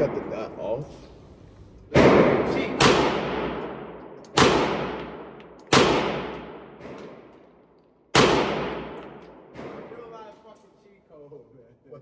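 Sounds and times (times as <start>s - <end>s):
pistol shots with echo: 1.9s - 7.4s, 8.1s - 10.1s.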